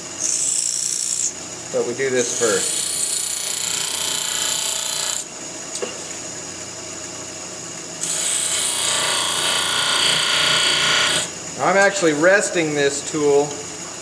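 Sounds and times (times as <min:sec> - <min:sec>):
bench grinder grinding steel: 0:02.1 - 0:05.3, 0:08.0 - 0:11.3.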